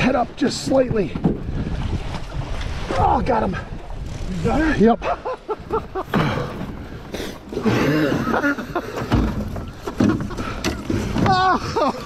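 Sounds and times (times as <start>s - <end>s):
handling noise in metal boat: 5.6s - 12.0s
dull thump: 8.8s - 11.4s.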